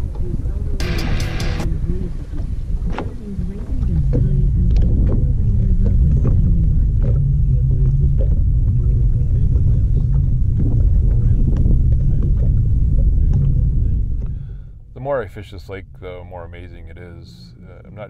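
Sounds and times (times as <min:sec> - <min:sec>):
wind buffeting microphone: 0:00.0 - 0:01.0, 0:01.6 - 0:15.0.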